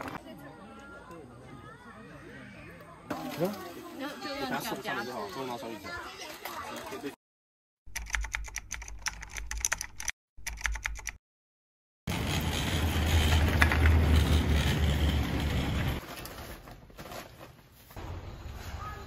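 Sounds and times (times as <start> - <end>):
keyboard typing clicks: 7.9 - 11.2.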